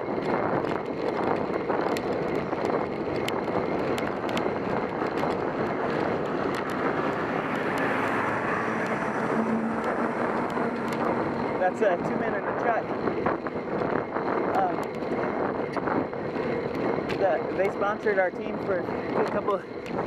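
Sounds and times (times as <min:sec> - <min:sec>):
truck engine and tyres passing: 0:00.0 - 0:20.0
wind and bicycle road noise: 0:00.0 - 0:20.0.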